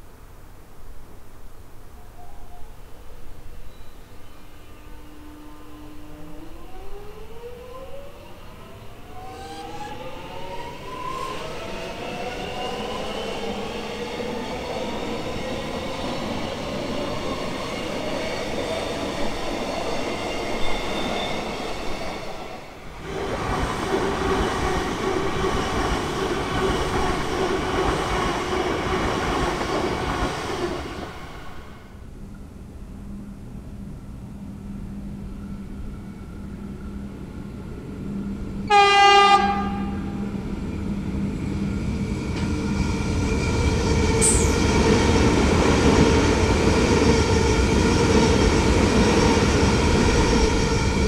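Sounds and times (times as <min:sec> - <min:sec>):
train wheels on rails: 0:07.6 - 0:31.8, 0:40.4 - 0:51.0.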